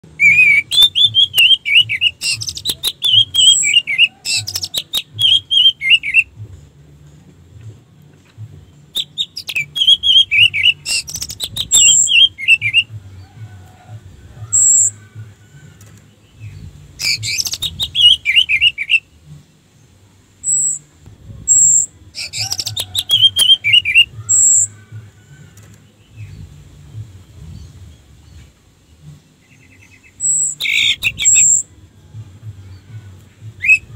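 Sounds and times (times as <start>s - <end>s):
bird singing whistled notes: 0.1s - 6.3s, 8.7s - 13.2s, 14.4s - 19.1s, 20.4s - 20.9s, 21.5s - 25.1s, 29.4s - 31.7s, 32.6s - 33.9s.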